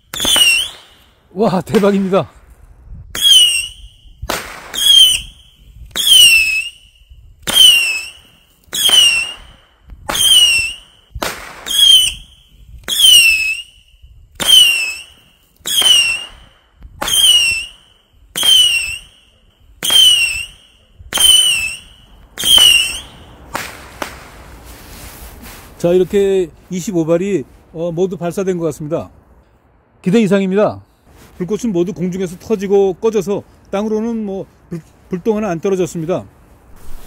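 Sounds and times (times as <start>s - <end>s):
firework shots whistling: 0.0s - 1.8s, 3.1s - 24.4s, 36.7s - 37.0s.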